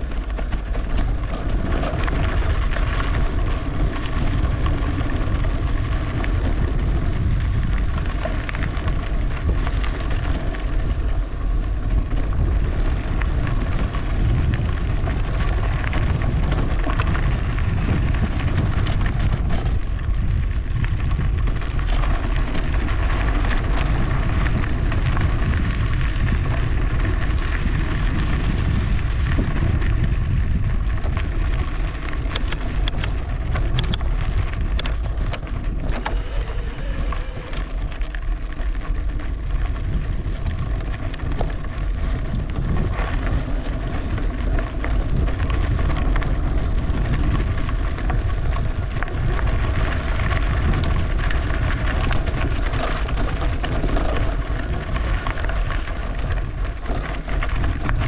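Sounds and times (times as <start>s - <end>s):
bike rolling noise: 0.0s - 58.0s
wind rumble on microphone: 0.0s - 58.0s
sharp clicks: 32.3s - 34.1s, 34.7s - 35.0s.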